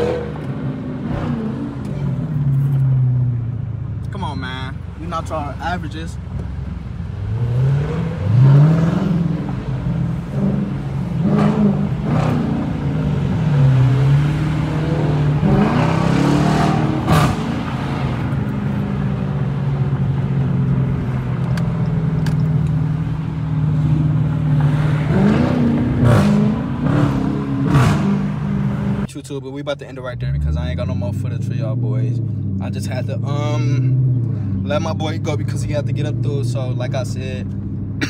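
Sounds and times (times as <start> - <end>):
car engine revving through gears: 0.0 - 3.4, 7.1 - 29.1.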